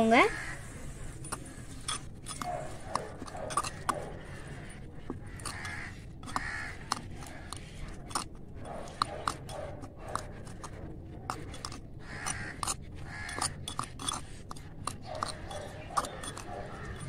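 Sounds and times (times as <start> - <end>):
utensil scraping clay pot: 0.0 - 17.0
crow cawing: 0.2 - 0.8, 5.2 - 7.5, 12.0 - 13.6.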